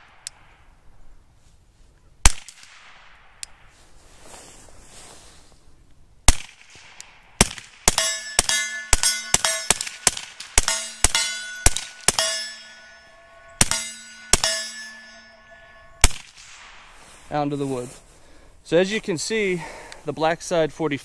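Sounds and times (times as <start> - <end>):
suppressed pistol shots: 6.3 - 12.4, 15.5 - 16.9
steel plate target ringing: 7.9 - 17.0.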